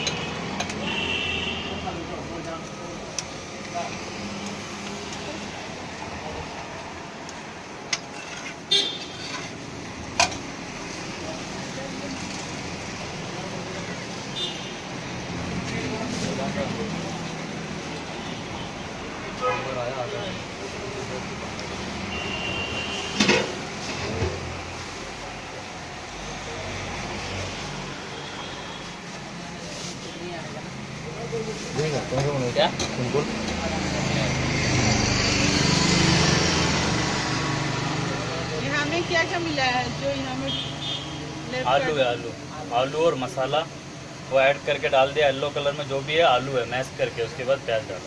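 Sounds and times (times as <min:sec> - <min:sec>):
street noise hiss: 0:00.0 - 0:48.0
metal spatula scraping a griddle: 0:07.9 - 0:09.7.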